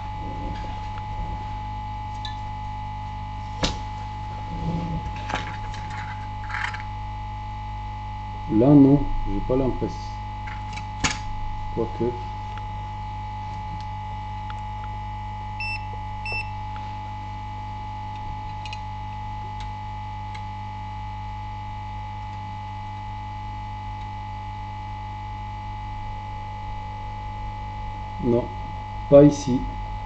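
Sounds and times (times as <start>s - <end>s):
electrical hum: 0.0s - 30.0s
short high-pitched beeps: 15.6s - 16.5s.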